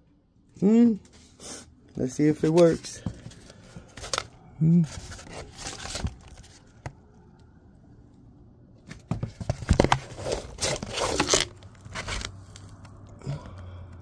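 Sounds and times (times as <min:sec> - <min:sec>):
rustling and scraping of cardboard: 0:02.4 - 0:07.0, 0:08.8 - 0:12.8.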